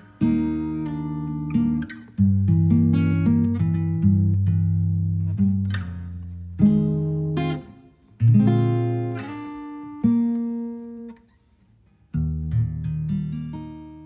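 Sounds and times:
acoustic guitar chords ringing: 0.0s - 11.1s.

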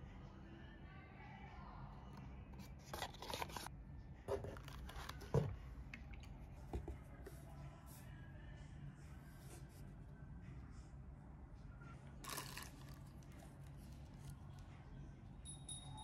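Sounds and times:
tissue paper and plastic rustling: 12.2s - 14.4s.

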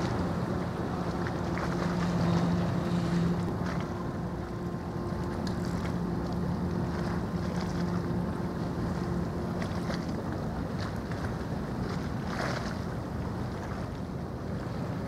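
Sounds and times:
ship engines droning: 0.0s - 15.0s.

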